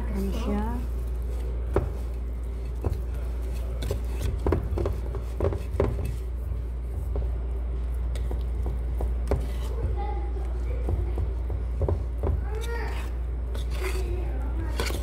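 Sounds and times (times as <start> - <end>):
whisk stirring batter: 0.2 - 15.0
whisk knocking against bowl: 1.7 - 6.3, 10.8 - 12.5.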